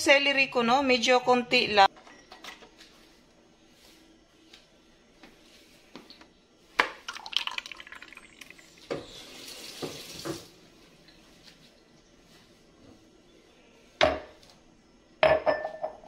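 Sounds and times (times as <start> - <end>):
water splashing in sink: 7.0 - 10.6.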